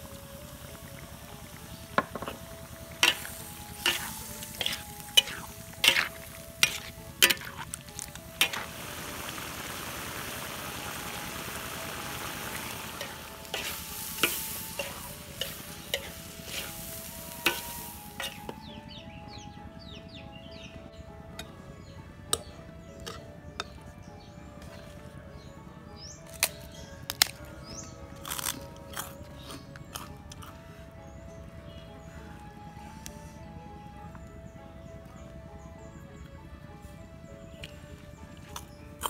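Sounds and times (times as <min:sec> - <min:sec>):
sauce sizzling: 0:01.2 - 0:18.6
metal spatula scraping a wok: 0:03.0 - 0:08.7, 0:13.0 - 0:18.5.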